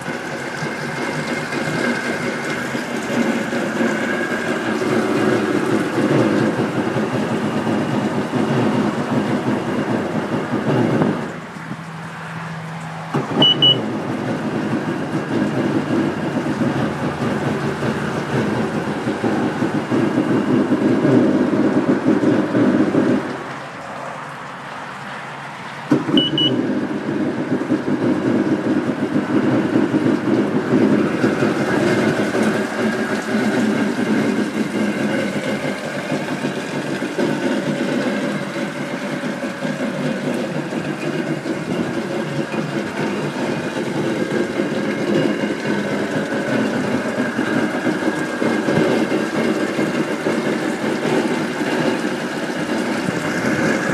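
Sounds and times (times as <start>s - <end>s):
watercraft engine starting and idling: 0.0s - 53.9s
short electronic beep: 13.4s - 13.9s, 26.1s - 26.6s.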